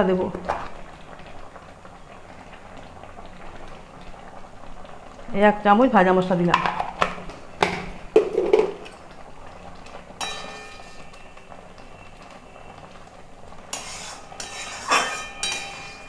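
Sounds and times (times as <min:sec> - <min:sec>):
cooking hiss: 0:00.0 - 0:16.0
metal spatula scraping a pan: 0:10.2 - 0:11.2, 0:13.7 - 0:16.0.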